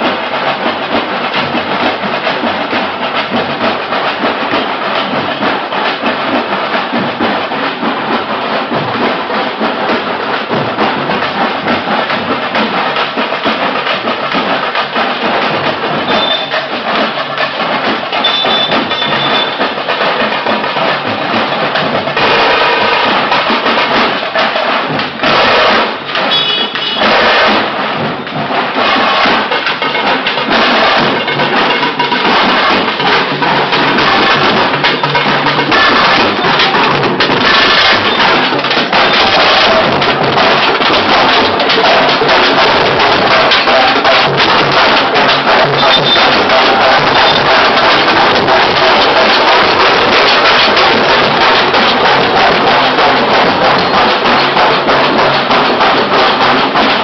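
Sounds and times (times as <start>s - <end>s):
procession band playing: 0.0s - 57.0s
rapid drumming: 0.0s - 57.0s
trumpets: 25.3s - 27.6s.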